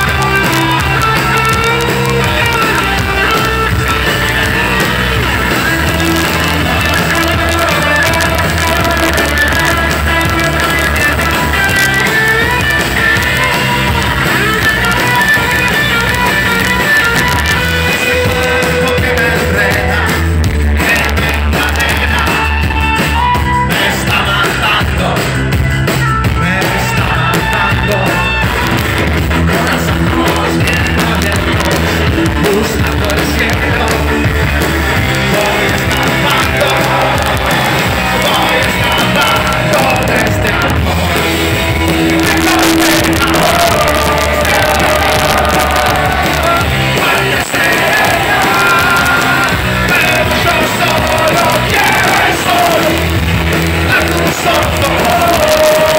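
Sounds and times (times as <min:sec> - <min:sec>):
bass guitar: 0:00.0 - 0:55.9
drums: 0:00.0 - 0:55.9
electric guitars: 0:00.0 - 0:55.9.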